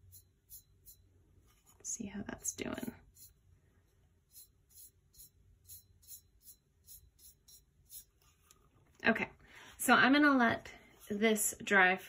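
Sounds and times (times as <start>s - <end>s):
paintbrush swishing over tumbler: 10.8s - 12.0s.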